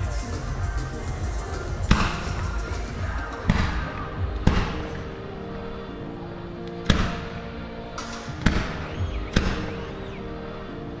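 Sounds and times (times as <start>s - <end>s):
music playing: 0.0s - 11.0s
fireworks bangs: 8.0s - 10.2s.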